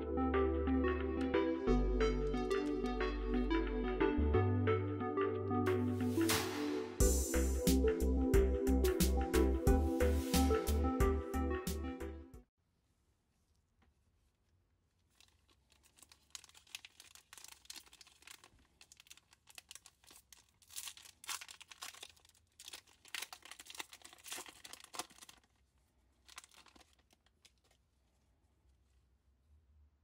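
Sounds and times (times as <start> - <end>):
foil wrapper tearing and crinkling: 15.0 - 27.8.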